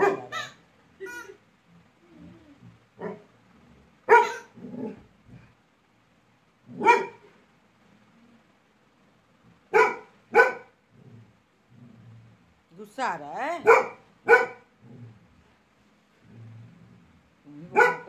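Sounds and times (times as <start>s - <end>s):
dog barking: 0.0s - 0.6s, 4.1s - 4.5s, 6.8s - 7.2s, 9.7s - 10.7s, 13.6s - 14.7s, 17.7s - 18.0s.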